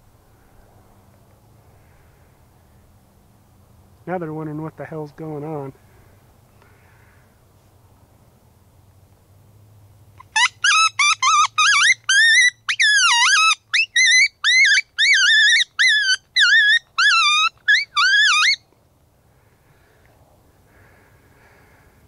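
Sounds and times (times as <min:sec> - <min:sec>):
coyote call yips and howls: 0:10.2 - 0:18.6.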